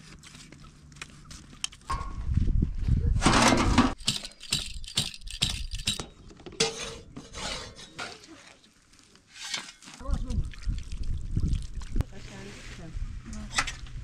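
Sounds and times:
hard objects clinking and rattling: 0:03.9 - 0:06.3.

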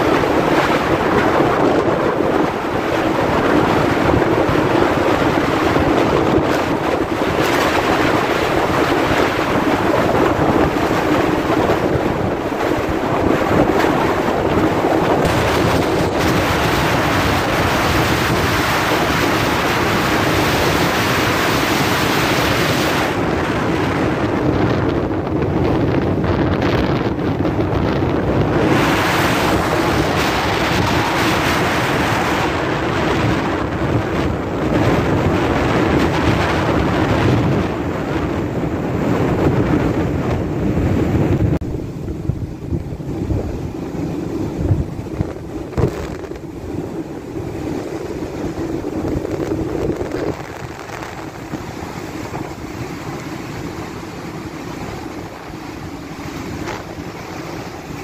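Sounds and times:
heavy seas rushing: 0:00.0 - 0:58.0
wind buffeting microphone: 0:00.0 - 0:58.0.

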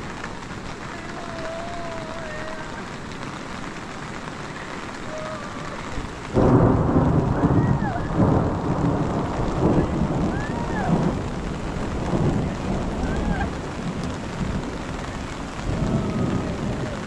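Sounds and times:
steady rain: 0:00.0 - 0:17.0
thunder crack and rumble: 0:04.5 - 0:17.0.

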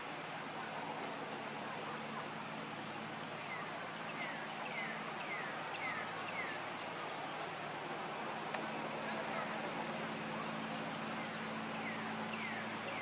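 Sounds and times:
osprey calling: 0:03.4 - 0:07.2.

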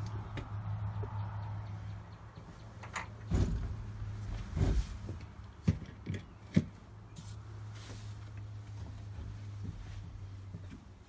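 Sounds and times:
heavy thumps: 0:03.2 - 0:05.8.

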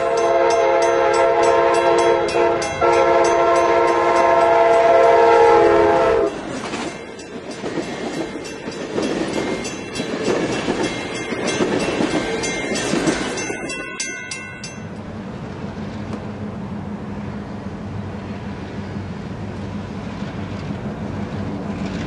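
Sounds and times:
locomotive air horn chord: 0:00.0 - 0:06.4
train cars rumbling over rails: 0:00.0 - 0:22.0.

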